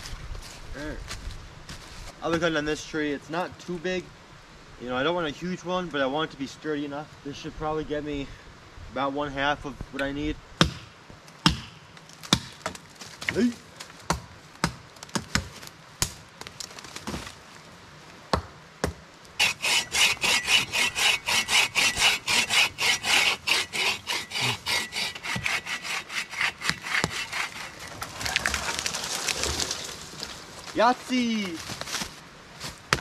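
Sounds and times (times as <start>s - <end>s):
chopping into tree trunk: 10.6s - 13.5s, 14.1s - 16.2s
hand saw cutting wood: 19.4s - 28.8s.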